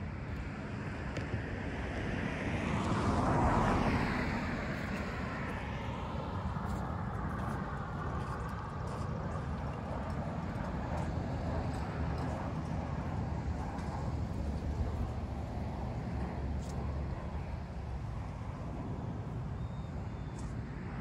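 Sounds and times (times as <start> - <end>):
vehicle passing by: 2.2 - 7.6.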